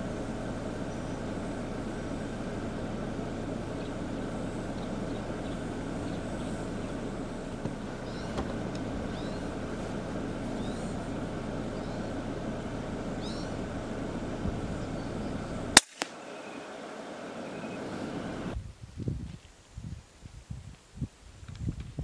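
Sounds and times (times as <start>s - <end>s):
vehicle rumbling on gravel road: 0.0s - 19.5s
faint bird chirps: 3.7s - 8.4s, 9.1s - 9.5s, 10.5s - 11.1s, 11.7s - 12.2s, 13.2s - 13.6s, 14.7s - 18.2s
sharp click: 15.8s - 16.2s.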